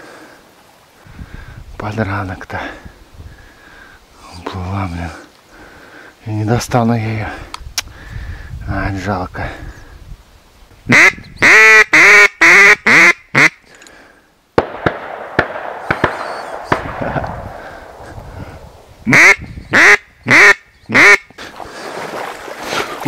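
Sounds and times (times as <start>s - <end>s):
duck quacking: 10.9s - 13.6s, 19.1s - 21.3s.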